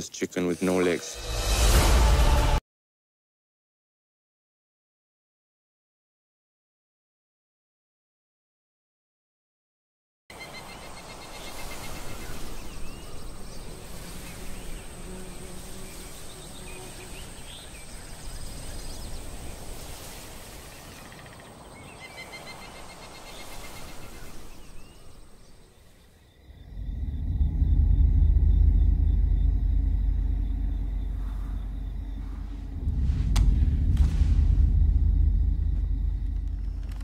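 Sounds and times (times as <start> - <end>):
insects chirping: 10.3 - 37.0
high insect whine: 10.4 - 37.0
deep loud rumble: 26.4 - 37.0.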